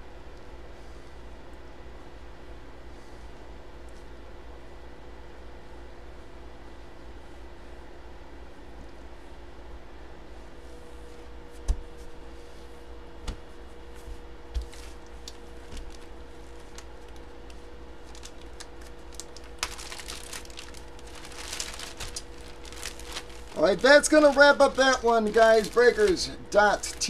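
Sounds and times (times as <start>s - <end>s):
plastic packaging crinkling: 14.6s - 27.0s.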